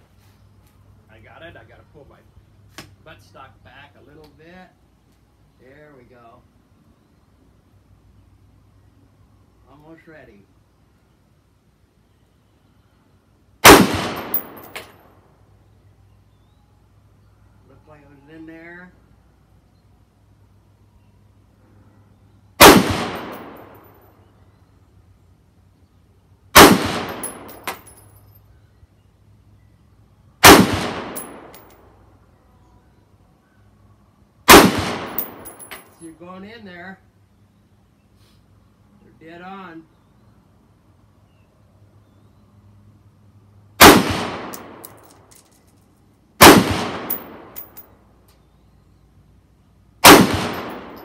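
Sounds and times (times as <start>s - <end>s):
rifle shots with echo: 13.6s - 14.8s, 22.6s - 23.9s, 26.6s - 27.9s, 30.4s - 31.8s, 34.5s - 35.9s, 43.8s - 45.1s, 46.4s - 47.8s, 50.0s - 51.0s.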